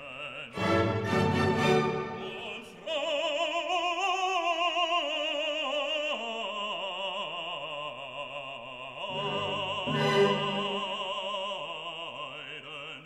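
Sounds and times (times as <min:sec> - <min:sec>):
slow classical music: 0:00.6 - 0:02.6, 0:09.0 - 0:11.4.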